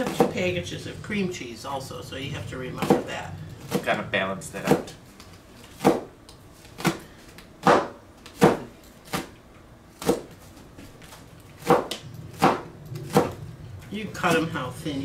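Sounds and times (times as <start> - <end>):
knife chopping on cutting board: 0.0 - 0.4, 4.6 - 5.0, 5.8 - 6.1, 6.8 - 9.4, 10.0 - 10.4, 11.6 - 13.4.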